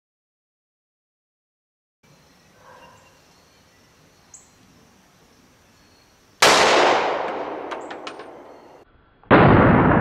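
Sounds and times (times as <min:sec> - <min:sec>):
pistol shot: 0:06.4 - 0:08.7, 0:09.3 - 0:10.0.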